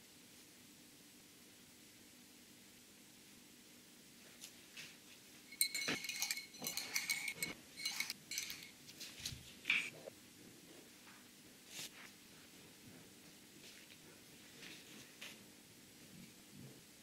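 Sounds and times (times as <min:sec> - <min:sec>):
small hard objects clinking: 0:05.5 - 0:08.8.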